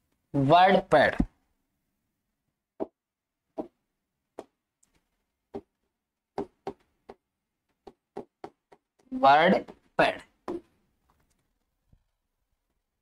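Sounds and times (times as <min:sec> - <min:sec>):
pen tapping on writing board: 0:05.5 - 0:10.7.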